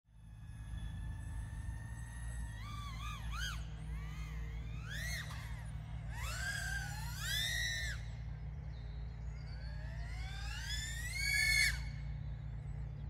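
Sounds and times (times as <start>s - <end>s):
drone motors whining: 0.1s - 13.0s.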